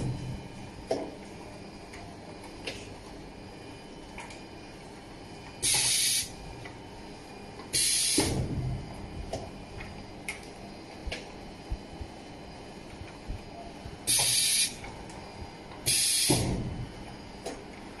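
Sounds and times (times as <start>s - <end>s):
compressed air hisses: 5.6s - 6.3s, 7.8s - 8.3s, 14.1s - 14.8s, 15.9s - 16.5s.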